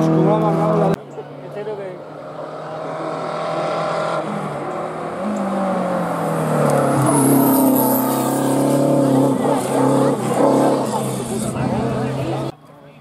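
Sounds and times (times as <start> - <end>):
rally car engine pulling hard: 0.0 - 12.5.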